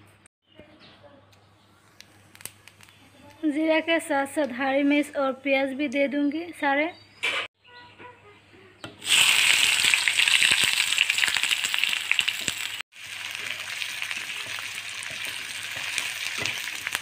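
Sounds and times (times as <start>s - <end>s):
onions sizzling in hot oil: 9.0s - 17.0s
spatula stirring frying food: 12.1s - 17.0s.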